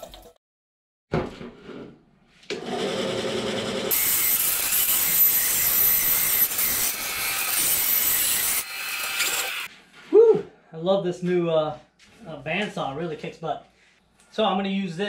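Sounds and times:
bandsaw humming: 0:02.6 - 0:09.7
saw blade cutting metal: 0:02.8 - 0:09.7.

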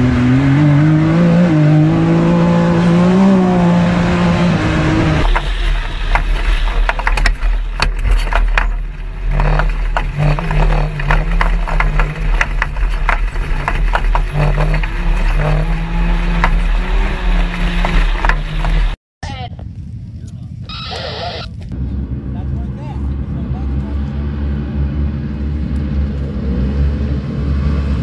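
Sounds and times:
utility vehicle engine running hard: 0:00.0 - 0:19.0, 0:19.6 - 0:28.0
heavy low rumble: 0:01.8 - 0:28.0
sharp clicks and knocks: 0:05.2 - 0:19.0.

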